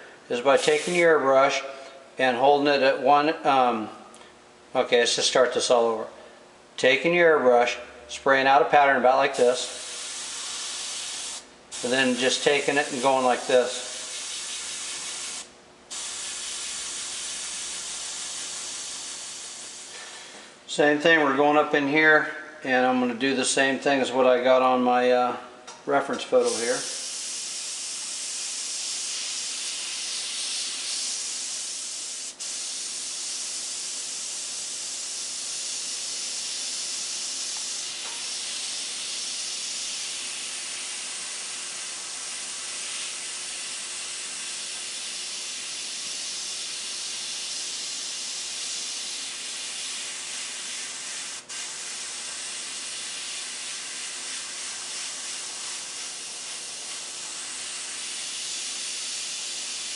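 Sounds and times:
airbrush hissing: 0.0 - 1.2, 9.3 - 20.4, 26.4 - 59.9.

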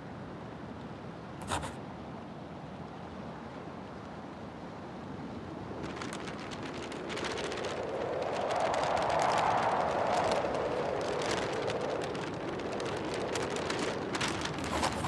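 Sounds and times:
wind and sea rushing: 4.4 - 15.0
rough crackles: 5.8 - 15.0.

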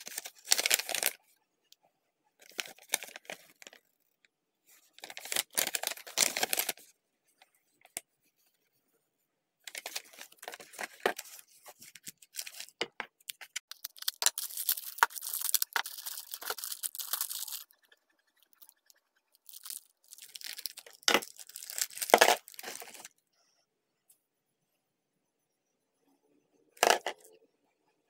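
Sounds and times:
plastic bags crinkling and tearing: 0.0 - 1.2, 5.0 - 6.8, 12.0 - 17.7, 19.5 - 23.1.

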